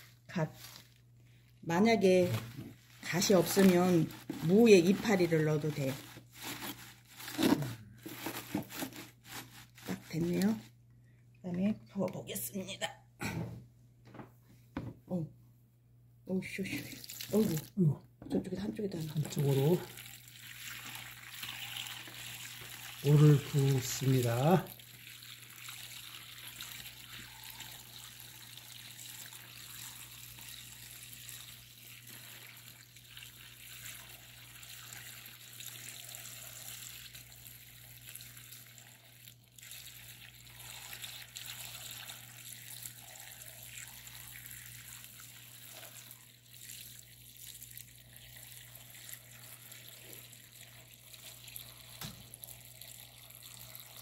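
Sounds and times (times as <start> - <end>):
liquid pouring into plastic tub: 1.9 - 10.6, 16.8 - 17.8, 18.8 - 54.0.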